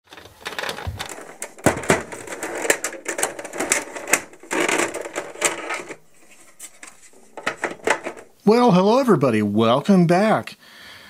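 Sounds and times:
typewriter rasping: 0.1 - 8.4
typewriter clacking: 0.5 - 8.4.

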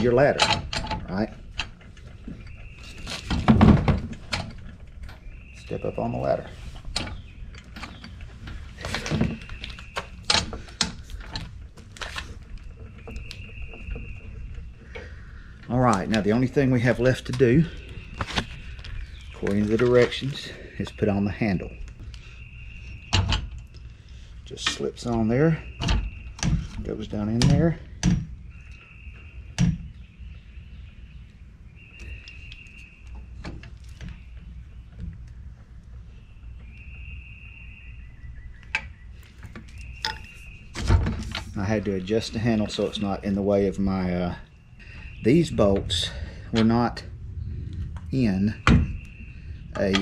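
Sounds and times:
metal ladder knocks and clunks: 0.0 - 4.8, 40.0 - 43.1.

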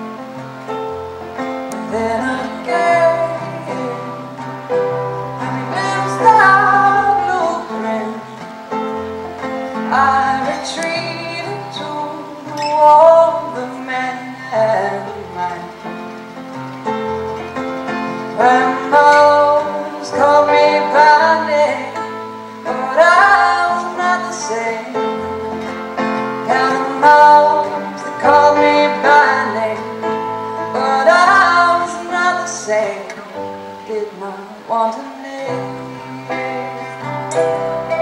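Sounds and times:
woman singing folk song: 1.7 - 16.3, 17.3 - 38.0
instrumental accompaniment: 14.3 - 32.4, 35.5 - 38.0.

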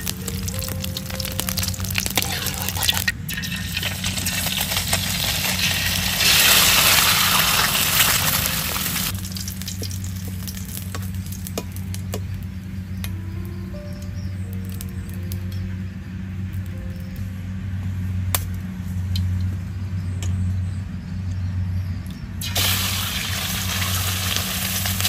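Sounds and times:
eggs sizzling in hot oil: 0.0 - 12.2, 22.4 - 25.0
oil popping spatters: 0.0 - 13.2, 22.4 - 25.0.

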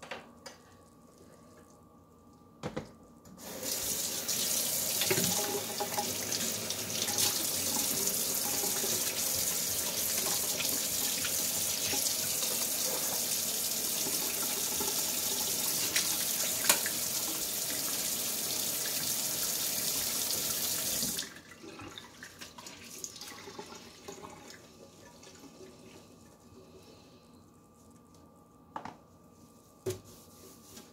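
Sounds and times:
tap water splashing into sink: 4.9 - 6.4, 14.0 - 17.0.

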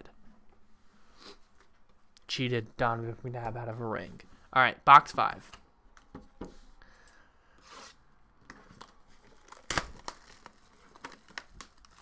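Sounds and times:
plastic shrink wrap crinkling: 8.5 - 12.0.

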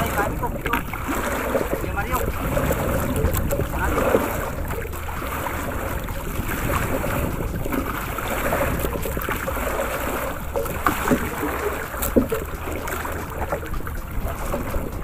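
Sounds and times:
sea water splashing against boat: 0.0 - 15.0
wind buffeting microphone: 0.0 - 15.0.

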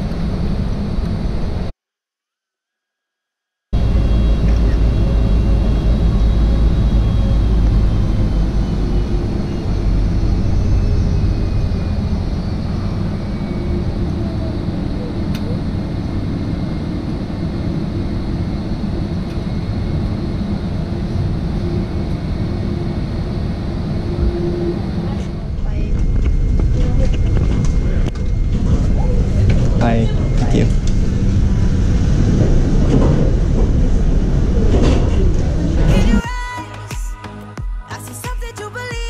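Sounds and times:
faint high whine: 3.8 - 32.8
low vehicle rumble: 3.8 - 36.2.

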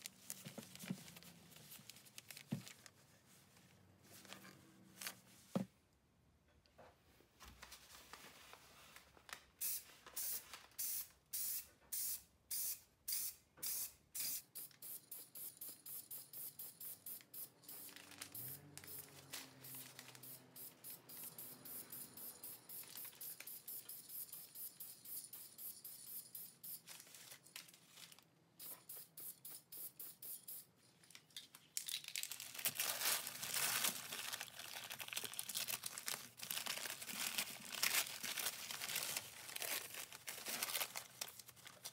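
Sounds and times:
newspaper crinkling and tearing: 0.0 - 2.9, 17.7 - 20.6, 26.8 - 28.3, 31.8 - 41.9
spray paint can hissing: 9.6 - 26.8, 28.6 - 30.7.

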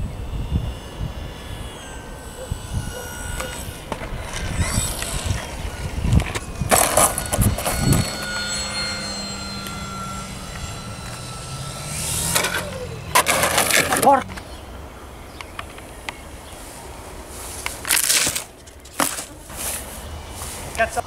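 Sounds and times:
model plane motor humming: 0.0 - 16.6.

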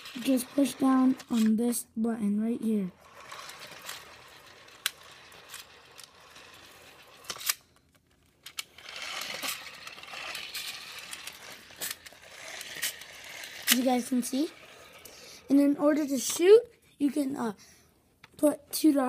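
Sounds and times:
toy saw blade whirring rattle: 0.0 - 1.6, 3.0 - 7.6, 8.4 - 16.5.

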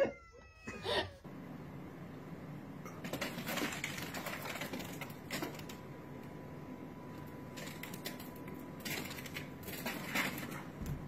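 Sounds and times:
cat whining cry: 0.0 - 1.3.

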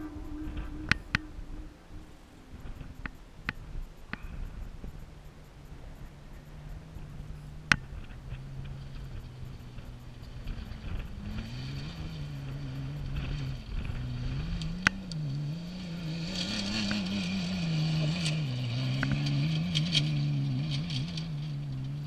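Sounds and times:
race truck engine revving: 5.6 - 22.0.

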